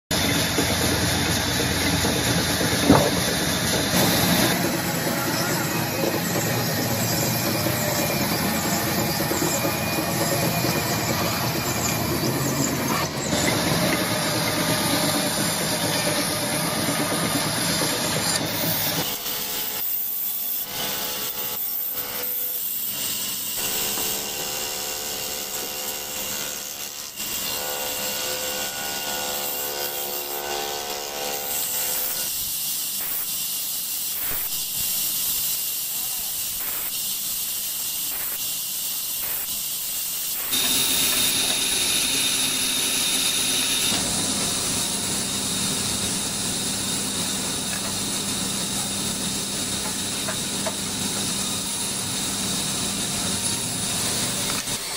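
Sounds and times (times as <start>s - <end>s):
small band saw whining: 0.1s - 54.9s
band saw ripping through log: 2.6s - 6.4s.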